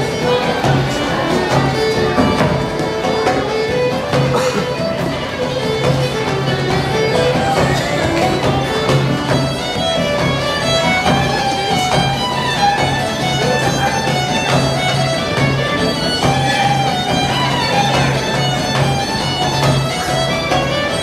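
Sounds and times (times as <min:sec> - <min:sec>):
bowed string melody: 0:00.0 - 0:21.0
plucked lutes and guitars: 0:00.0 - 0:21.0.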